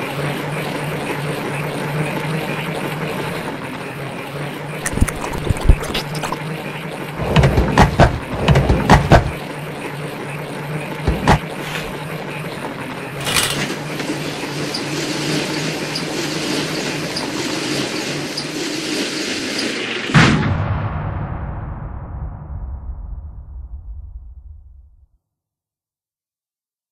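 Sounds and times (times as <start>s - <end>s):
loud knocks and clatters: 7.2s - 9.4s, 11.1s - 11.6s
roller shutter rolling down: 13.0s - 18.3s.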